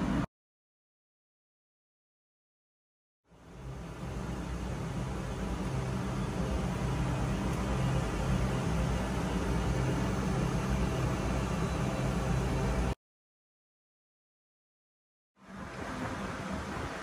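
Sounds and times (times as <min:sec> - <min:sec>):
machinery low hum: 0:03.3 - 0:13.0.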